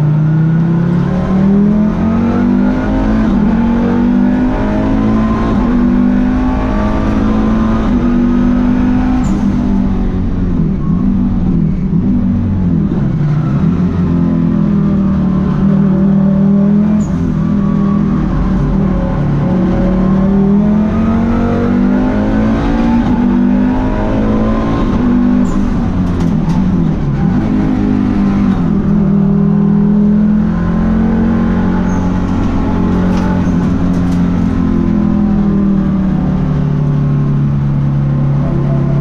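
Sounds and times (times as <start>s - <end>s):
race car engine revving: 0.0s - 39.0s.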